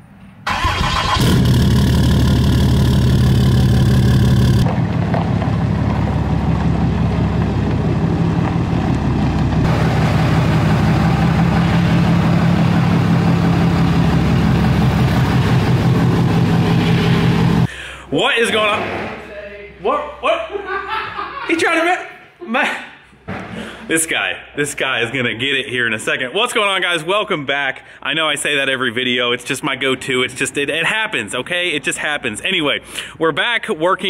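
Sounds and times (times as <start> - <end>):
diesel truck engine starting: 0.4 - 18.1.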